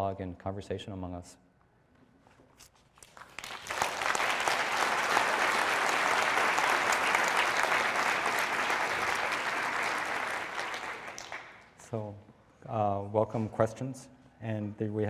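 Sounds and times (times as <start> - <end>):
audience applauding: 3.0 - 11.8.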